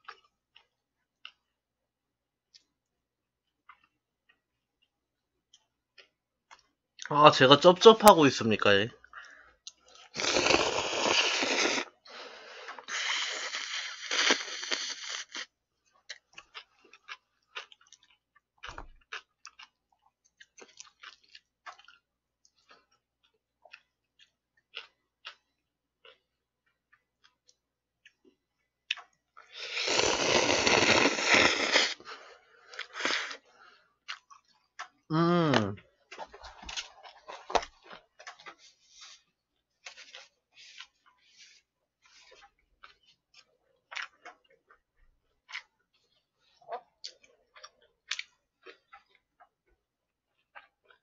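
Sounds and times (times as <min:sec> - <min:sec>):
wet chewing and lip-smacking: 0:00.0 - 0:01.7, 0:02.4 - 0:07.1, 0:12.6 - 0:35.1, 0:36.0 - 0:51.0
person slurping noodles: 0:10.0 - 0:12.0, 0:12.7 - 0:15.5, 0:29.5 - 0:32.1, 0:32.8 - 0:33.5.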